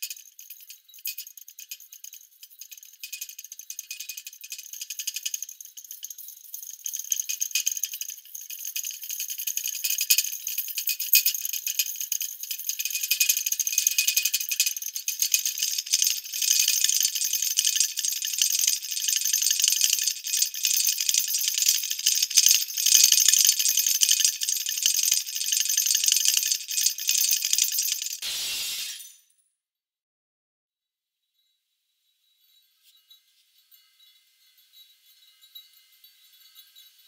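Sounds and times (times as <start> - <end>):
glass bulbs rattling and tinkling: 0.0 - 29.3, 32.4 - 37.0
even hiss: 28.2 - 29.2.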